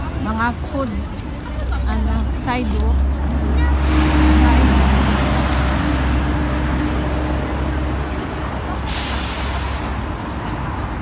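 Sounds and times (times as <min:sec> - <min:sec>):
bus engine rumbling: 0:00.0 - 0:11.0
sharp hiss of air: 0:08.8 - 0:10.0.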